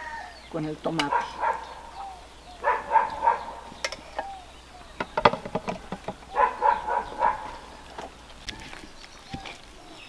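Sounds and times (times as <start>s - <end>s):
dog barking: 1.0s - 3.8s, 6.3s - 7.8s.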